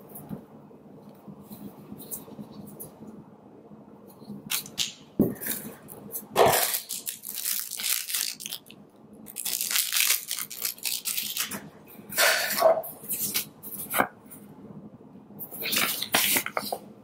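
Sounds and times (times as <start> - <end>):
plastic bag crinkling: 6.5 - 11.6.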